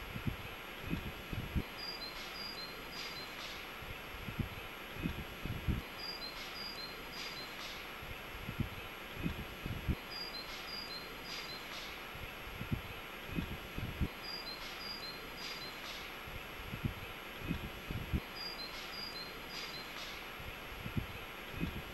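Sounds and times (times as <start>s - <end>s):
steady hiss: 0.0s - 21.9s
small birds chirping: 1.7s - 3.6s, 5.9s - 7.9s, 10.0s - 12.0s, 14.1s - 16.1s, 18.3s - 20.2s.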